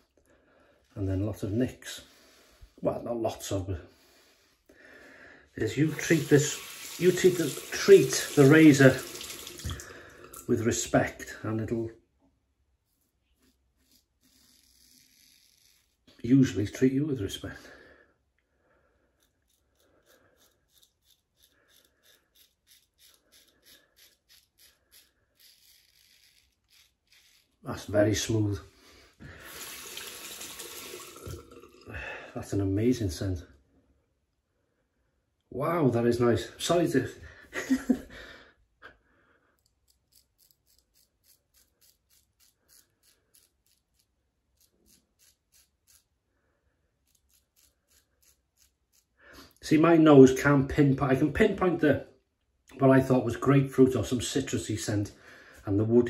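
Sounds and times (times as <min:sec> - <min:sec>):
razor scraping stubble: 0:12.8 - 0:16.6, 0:19.1 - 0:28.4, 0:39.6 - 0:46.2, 0:47.0 - 0:49.6.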